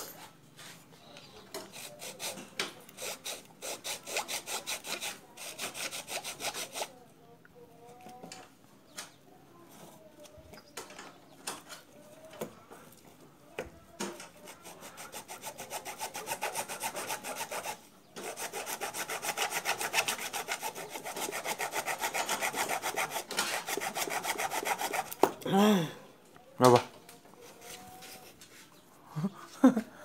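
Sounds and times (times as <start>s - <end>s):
hacksaw cutting plastic: 1.5s - 6.9s, 14.2s - 25.3s.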